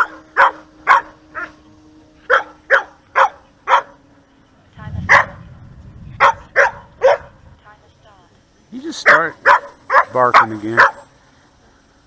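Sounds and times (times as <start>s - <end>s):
dog barking loudly: 0.0s - 1.5s, 2.3s - 4.0s, 5.1s - 5.4s, 6.2s - 7.4s, 9.0s - 11.1s
low rumble: 4.6s - 8.3s.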